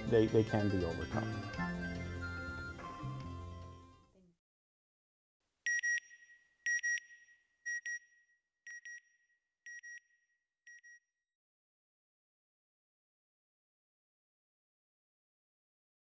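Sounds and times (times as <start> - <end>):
background music: 0.0 - 4.2.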